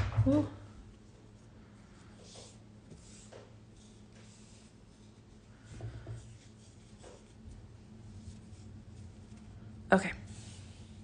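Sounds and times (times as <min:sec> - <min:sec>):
low steady hum: 0:00.0 - 0:11.0
thread rubbing and swishing: 0:06.2 - 0:11.0.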